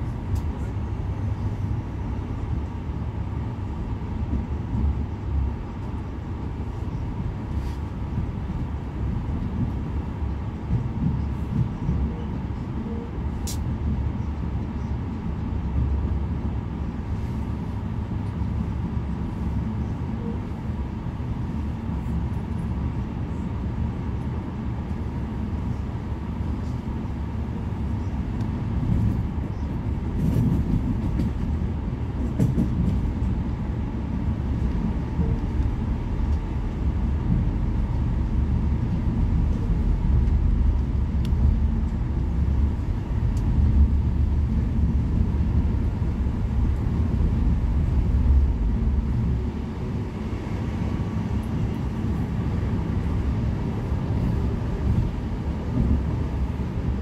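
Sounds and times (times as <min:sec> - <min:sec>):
train wheels rumbling on rails: 0:00.0 - 0:57.0
train clatters: 0:04.2 - 0:16.0, 0:27.7 - 0:57.0.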